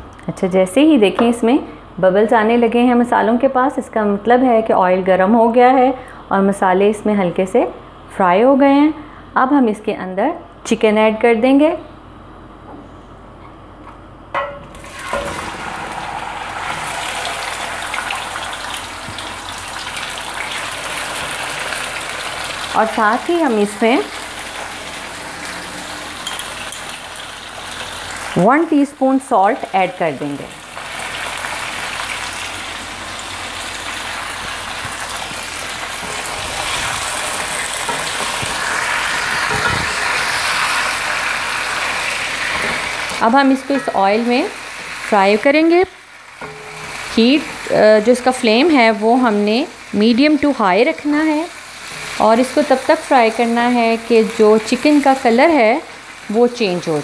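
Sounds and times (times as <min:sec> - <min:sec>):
chicken sizzling in hot oil: 0:14.7 - 0:57.0.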